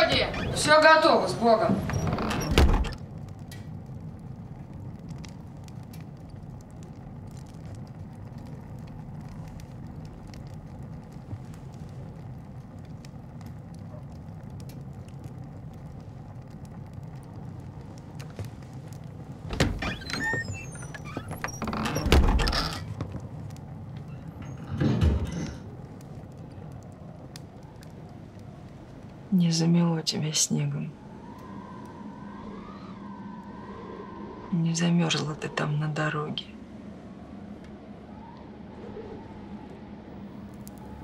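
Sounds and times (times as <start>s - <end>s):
blizzard wind: 0.0s - 41.0s
faint ticks: 4.7s - 19.1s.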